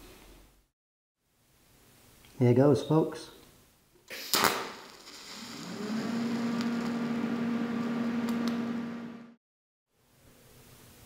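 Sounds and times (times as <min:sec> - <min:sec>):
welding arc buzzing: 0:04.3 - 0:09.4.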